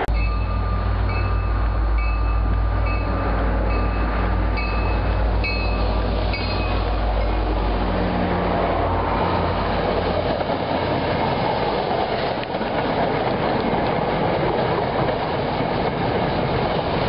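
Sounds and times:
train bell ringing: 0.0 - 7.5
diesel locomotive rumble: 0.0 - 17.0.

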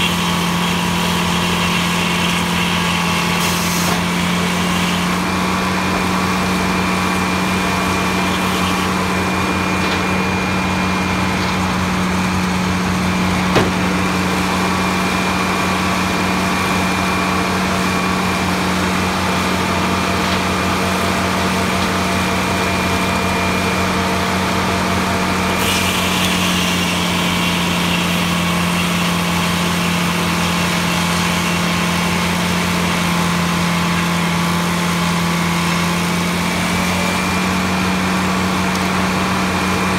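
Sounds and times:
saw blade cutting log: 0.0 - 10.3, 13.5 - 37.6
sawmill engine hum: 0.0 - 39.9.

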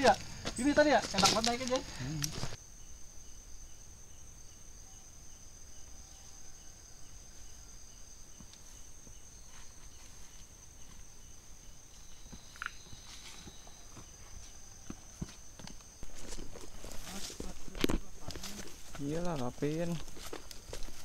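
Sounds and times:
crickets trilling: 0.0 - 21.0
pulsing insect chirp: 0.0 - 21.0.

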